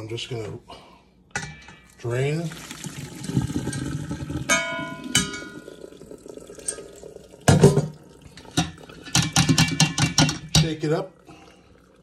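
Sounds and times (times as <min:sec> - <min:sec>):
pot clanking against metal: 0:01.3 - 0:02.0, 0:03.5 - 0:05.9, 0:06.5 - 0:11.0
water pouring into colander: 0:02.0 - 0:09.2.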